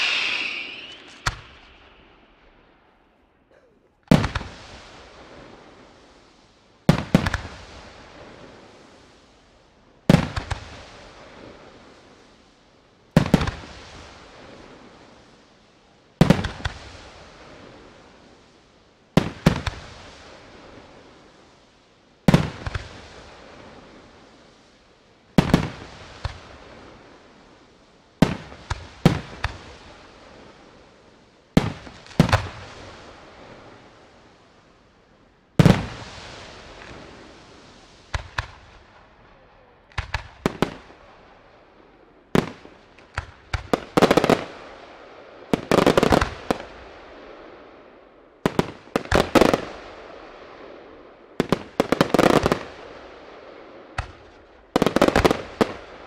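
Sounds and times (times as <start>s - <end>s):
firework shells bursting: 0.0s - 2.6s.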